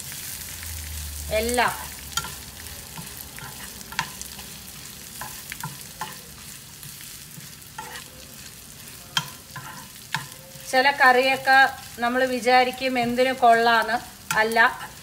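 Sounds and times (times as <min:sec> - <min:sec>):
oil sizzling: 0:00.0 - 0:15.0
spoon scraping frying pan: 0:01.6 - 0:15.0
spoon tapping pan: 0:02.1 - 0:04.5, 0:05.1 - 0:08.0, 0:09.1 - 0:10.5.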